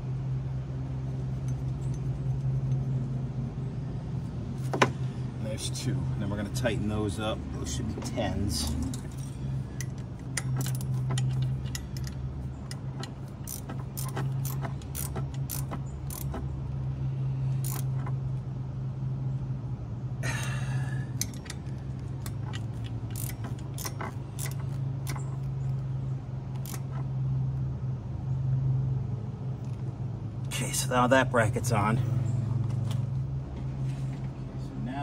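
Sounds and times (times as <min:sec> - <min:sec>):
steady low hum: 0:00.0 - 0:35.0
ratchet wrench clicking: 0:08.6 - 0:16.5, 0:17.6 - 0:18.2, 0:21.1 - 0:25.8, 0:26.5 - 0:27.1.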